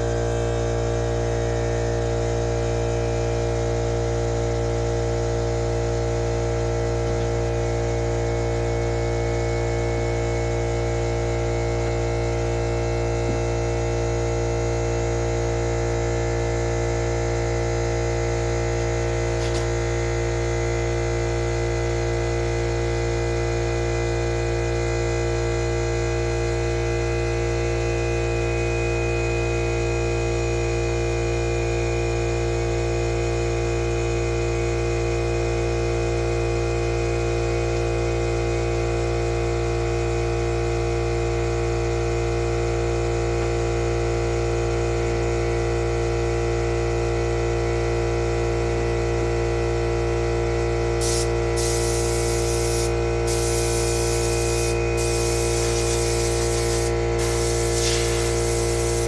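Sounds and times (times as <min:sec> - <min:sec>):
steady electrical hum: 0:00.0 - 0:31.1, 0:50.5 - 0:59.0.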